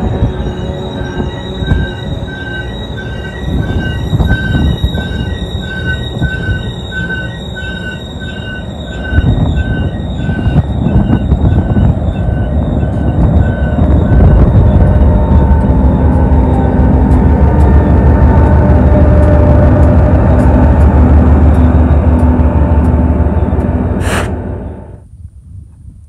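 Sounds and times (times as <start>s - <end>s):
wheels squealing: 0.0s - 20.5s
diesel locomotive rumble: 0.0s - 25.2s.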